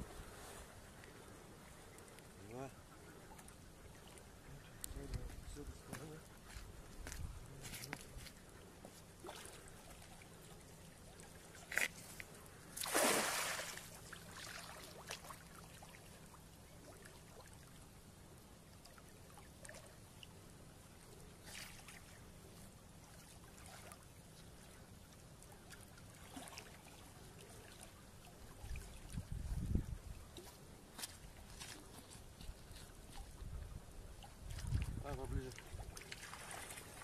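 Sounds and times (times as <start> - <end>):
net splashing into water: 12.8 - 15.4, 35.6 - 37.0.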